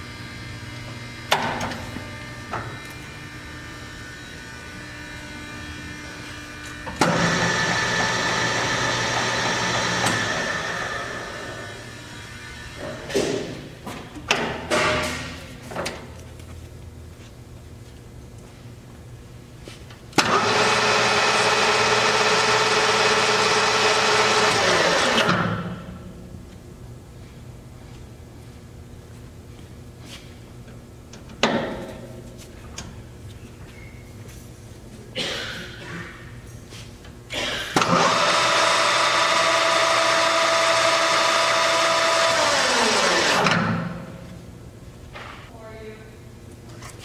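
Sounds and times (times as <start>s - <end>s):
lathe running with whine: 2.2s - 12.9s, 20.2s - 25.4s, 37.8s - 43.6s
lathe gears whining: 37.8s - 43.8s.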